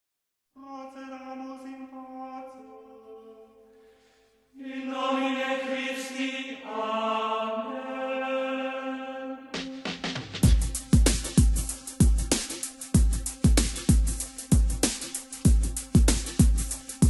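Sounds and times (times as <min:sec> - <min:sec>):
chant-like voices in held chords: 0:00.6 - 0:03.9, 0:04.6 - 0:10.0.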